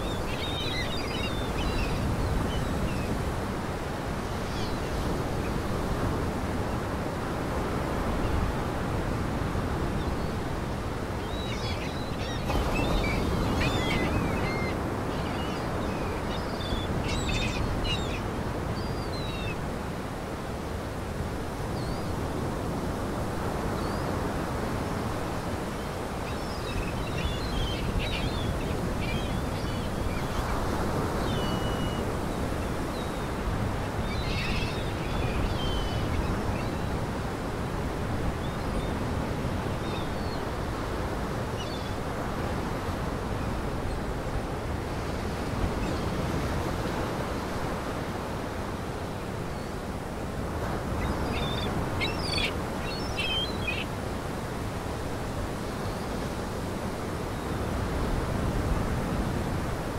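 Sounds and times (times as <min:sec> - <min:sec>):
waterbirds calling: 0:00.0 - 0:03.4, 0:10.0 - 0:19.8, 0:25.4 - 0:37.0, 0:38.0 - 0:42.7, 0:49.3 - 0:56.4
lake waves: 0:00.0 - 0:59.9
wind: 0:00.0 - 0:59.9.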